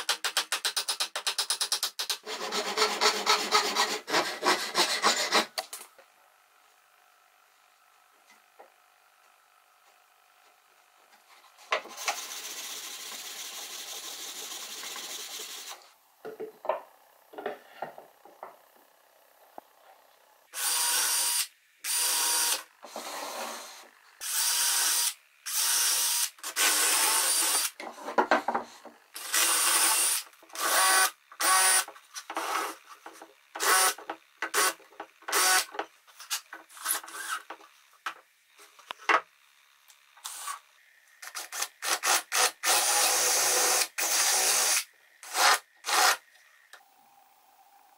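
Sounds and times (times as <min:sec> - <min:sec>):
cordless drill driving into wood: 0:33.6 - 0:35.7, 0:41.5 - 0:46.2.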